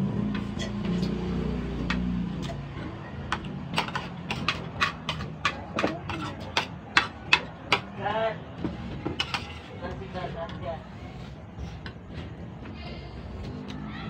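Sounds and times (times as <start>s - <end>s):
cutlery clinking on plates: 3.4s - 8.0s, 9.0s - 9.7s.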